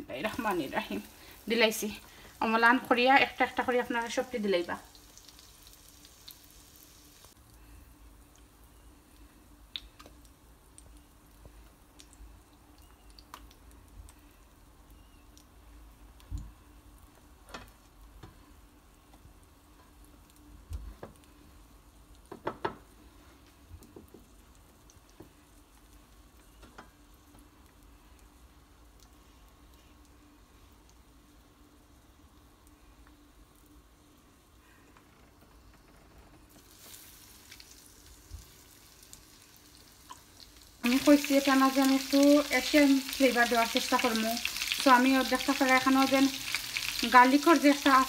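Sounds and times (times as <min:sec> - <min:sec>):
chicken sizzling in oil: 0:00.0 - 0:07.4, 0:36.5 - 0:48.0.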